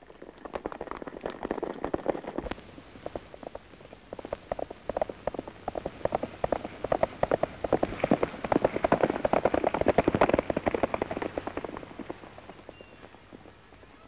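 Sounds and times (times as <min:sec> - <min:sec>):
many horses galloping: 0:00.0 - 0:14.0
single horse galloping: 0:00.0 - 0:14.0.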